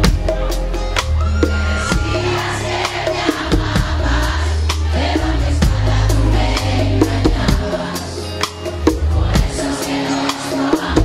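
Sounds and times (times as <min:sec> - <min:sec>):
bass line: 0:00.0 - 0:09.8
live band music: 0:00.0 - 0:11.0.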